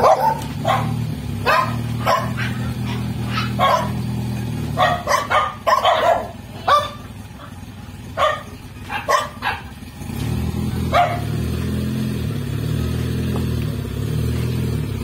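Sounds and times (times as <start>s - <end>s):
dog barking: 0.0s - 4.1s, 4.7s - 9.8s, 10.9s - 11.4s
jeep engine running: 0.0s - 15.0s.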